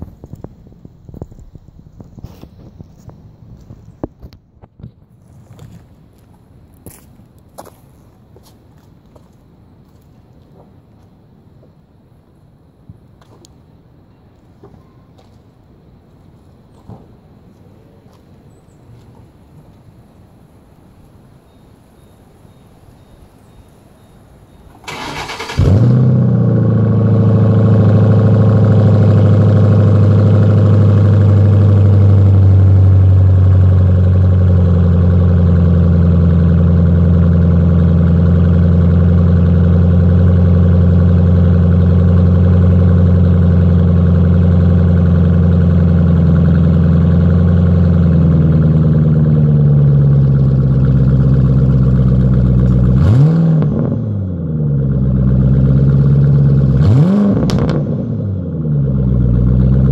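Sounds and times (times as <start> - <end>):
car engine starting and idling: 20.2 - 59.9.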